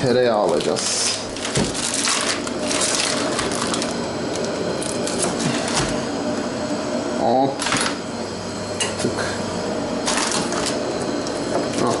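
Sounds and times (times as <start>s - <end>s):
kitchen items rustling and clattering: 0.4s - 4.0s, 4.8s - 6.0s, 10.0s - 10.8s.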